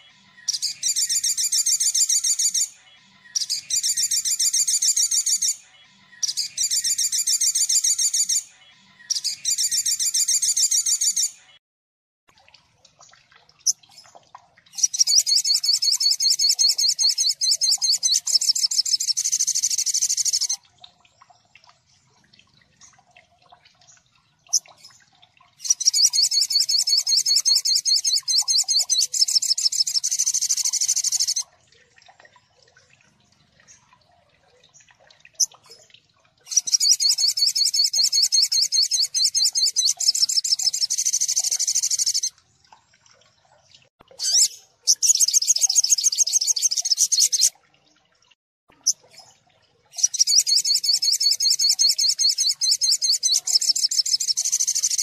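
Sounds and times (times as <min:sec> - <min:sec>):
bird song rapid high notes: 0:14.7 - 0:20.6, 0:25.6 - 0:31.4, 0:36.5 - 0:42.3.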